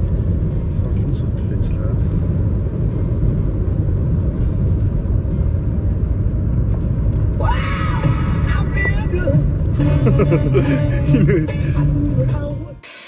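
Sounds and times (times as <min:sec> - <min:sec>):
car cabin road rumble: 0:00.0 - 0:12.7
music with gliding tones: 0:00.0 - 0:13.0.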